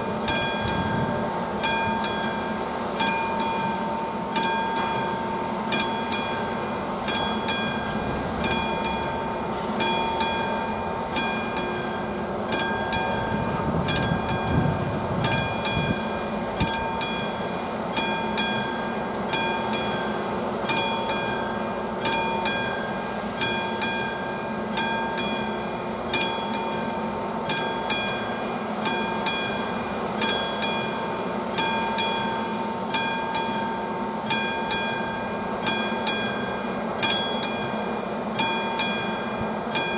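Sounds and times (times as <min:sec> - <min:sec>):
level crossing bell ringing: 0:20.7 - 0:39.9.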